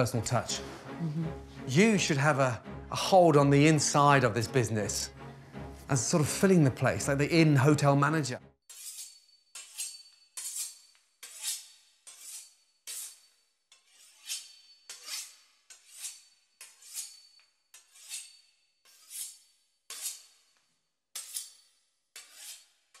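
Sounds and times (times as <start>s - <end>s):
knife sawing through crisp pastry: 8.7s - 20.6s, 21.2s - 23.0s.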